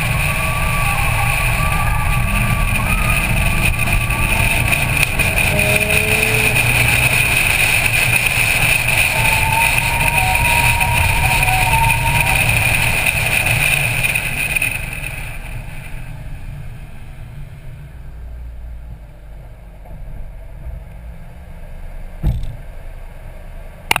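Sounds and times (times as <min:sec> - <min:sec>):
race car engine whining: 0:00.0 - 0:24.0
single thump: 0:22.2 - 0:22.6.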